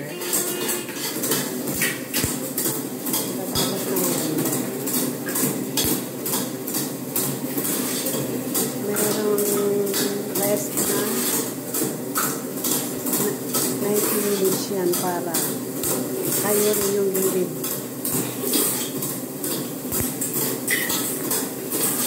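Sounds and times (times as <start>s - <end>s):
motor hum: 0.0s - 7.6s
mixer paddle scraping metal bowl: 0.0s - 22.0s.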